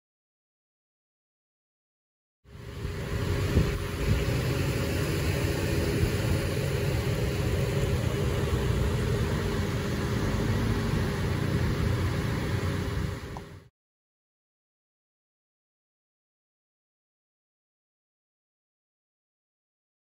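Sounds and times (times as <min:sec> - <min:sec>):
vehicle engine idling: 0:02.5 - 0:13.7.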